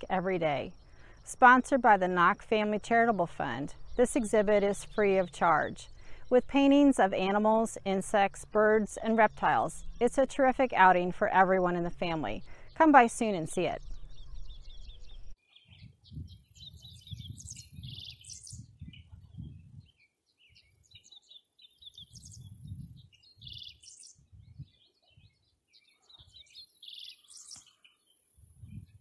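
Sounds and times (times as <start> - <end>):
birds chirping and trilling: 0.0 - 29.0
wind gusting on microphone: 9.3 - 19.9, 22.0 - 25.4, 28.5 - 29.0.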